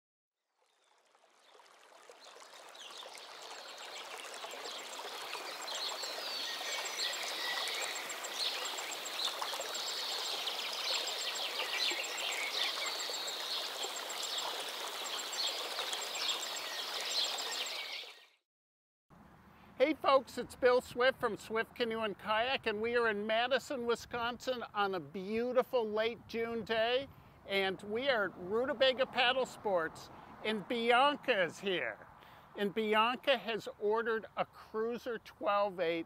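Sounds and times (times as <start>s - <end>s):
running water: 0.6s - 18.2s
birds chirping: 2.2s - 18.4s.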